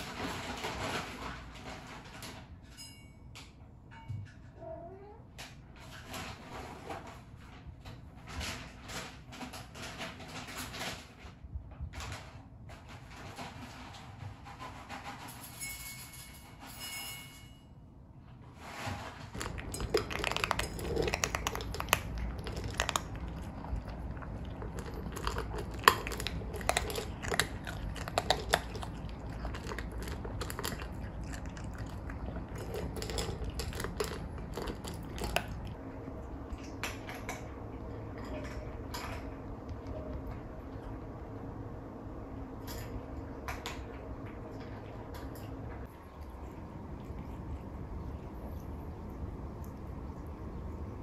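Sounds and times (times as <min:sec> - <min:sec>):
cats crunching food: 0:00.0 - 0:02.6, 0:18.6 - 0:51.0.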